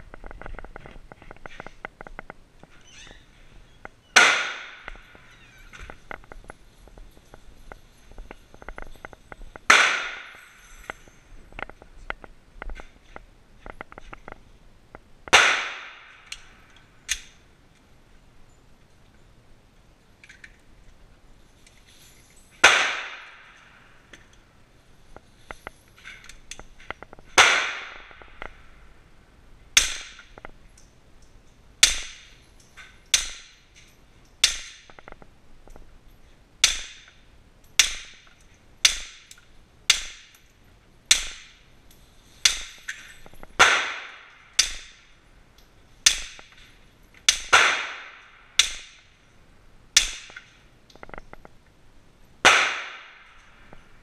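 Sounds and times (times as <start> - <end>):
suppressed pistol shots: 4.2 - 5.0, 9.7 - 10.3, 15.3 - 16.1, 22.6 - 23.5, 52.4 - 53.2
gun handling clicks: 16.2 - 17.4, 20.2 - 20.7.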